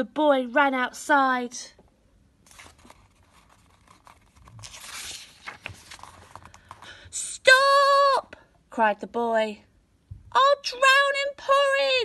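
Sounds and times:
paper page rustle: 0:02.4 - 0:06.9.

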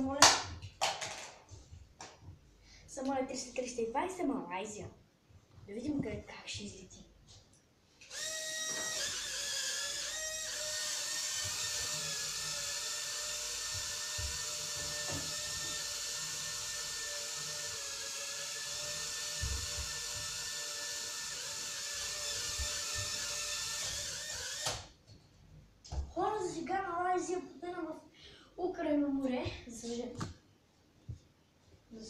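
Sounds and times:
toy drone propellers whining: 0:08.1 - 0:24.8.

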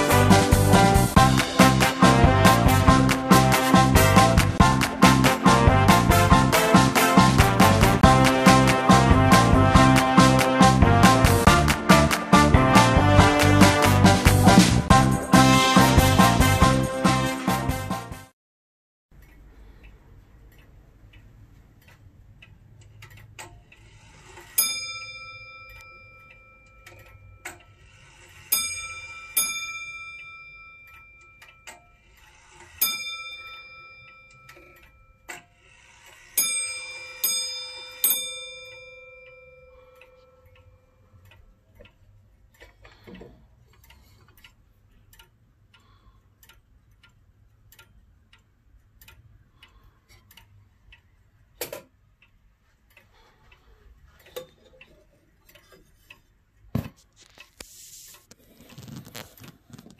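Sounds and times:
pendulum clock ticking: 0:00.0 - 0:16.8, 0:19.1 - 0:59.9
sharp clock clicks: 0:19.2 - 0:53.2
clock bell striking: 0:24.6 - 0:27.4, 0:28.5 - 0:32.0, 0:32.8 - 0:35.3, 0:36.4 - 0:41.0.

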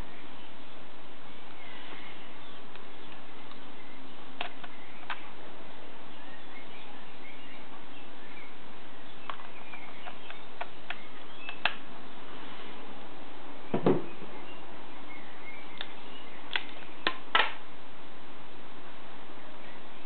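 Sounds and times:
faint bird chirps: 0:00.0 - 0:05.4, 0:06.0 - 0:12.5, 0:13.6 - 0:17.2.

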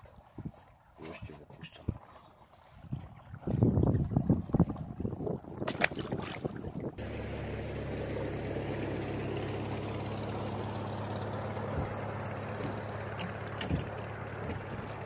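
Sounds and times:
motorboat engine humming: 0:00.0 - 0:15.0
water noise: 0:00.0 - 0:15.0
wind: 0:00.0 - 0:15.0
fish splashing: 0:01.9 - 0:07.3.

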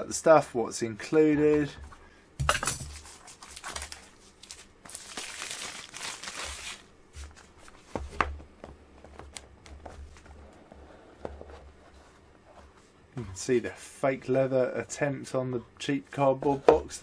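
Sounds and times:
shrink-wrap crackling: 0:02.9 - 0:06.9.

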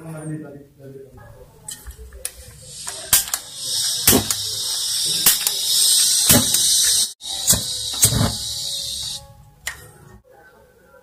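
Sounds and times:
gas torch hissing: 0:02.2 - 0:09.3.

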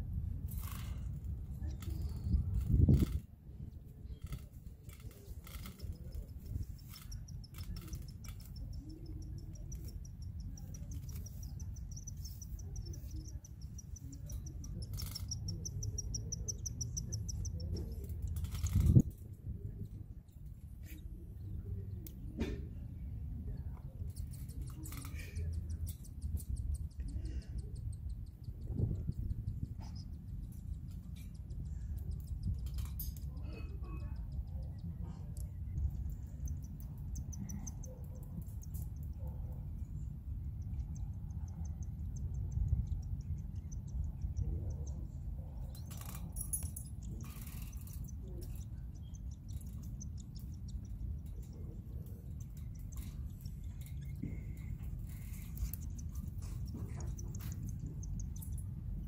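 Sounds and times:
steady low rumble: 0:00.0 - 0:59.0
chicks peeping: 0:05.7 - 0:18.8.

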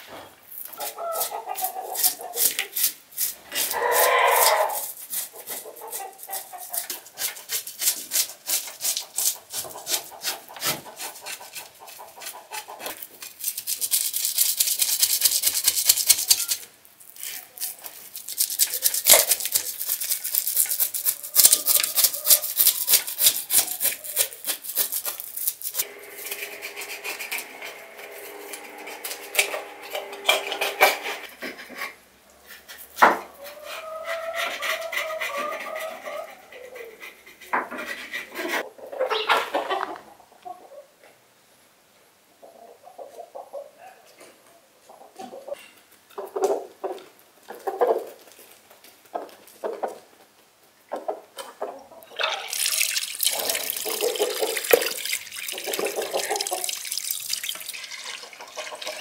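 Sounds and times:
knife scraping fish scales: 0:00.7 - 0:12.4, 0:13.2 - 0:27.4.

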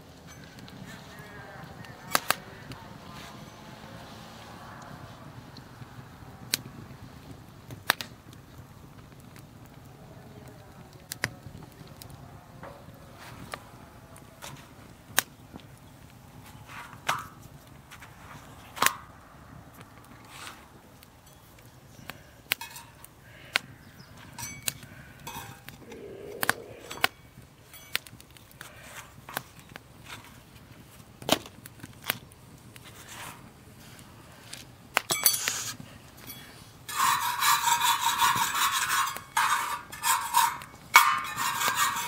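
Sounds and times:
wood fire burning: 0:00.0 - 0:42.0
firewood crackling pops: 0:02.1 - 0:02.4, 0:06.4 - 0:09.8, 0:10.9 - 0:12.2, 0:14.3 - 0:36.4.

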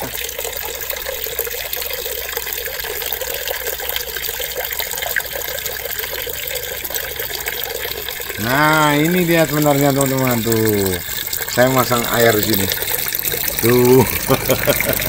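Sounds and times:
water trickling and splashing: 0:00.0 - 0:15.0.

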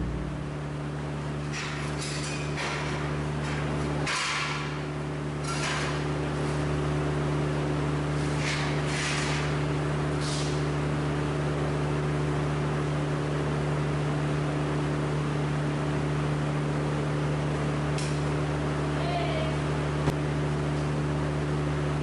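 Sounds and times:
low machine hum: 0:00.0 - 0:22.0.

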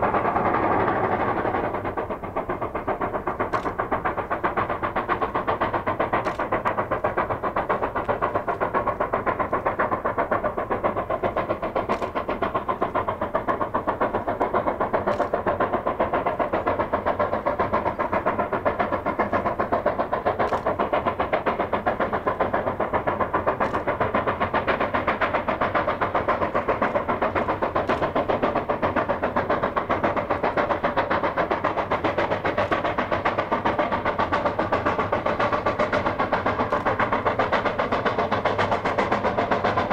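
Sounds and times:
steam locomotive chuffing: 0:00.0 - 0:39.9
faint sharp clicks: 0:03.5 - 0:03.8, 0:06.2 - 0:06.8, 0:11.9 - 0:12.2, 0:20.4 - 0:20.8, 0:23.6 - 0:23.9.

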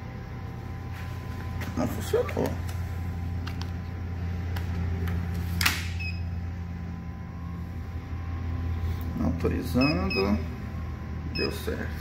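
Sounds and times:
vending machine hum: 0:00.0 - 0:12.0.

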